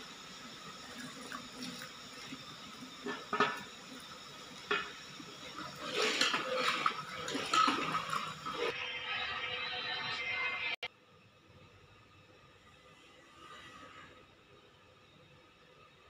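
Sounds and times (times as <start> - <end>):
spoon scraping and stirring: 5.6 - 8.8.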